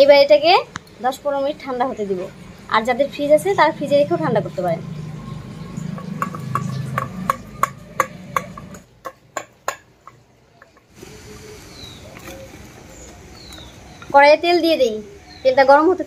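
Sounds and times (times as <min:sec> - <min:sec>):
bird chirping: 0:00.7 - 0:09.4, 0:10.0 - 0:16.0
utensil tapping metal cookware: 0:06.0 - 0:10.9.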